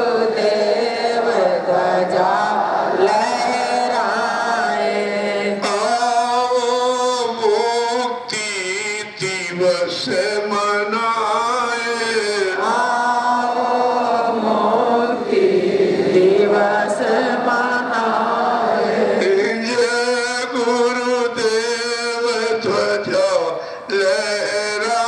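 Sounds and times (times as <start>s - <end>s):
man chanting: 3.0s - 14.2s, 19.1s - 25.0s.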